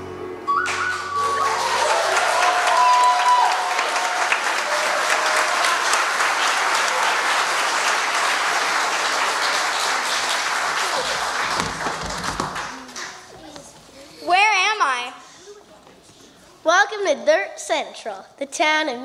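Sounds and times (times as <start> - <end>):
audience applauding: 0.5 - 13.3.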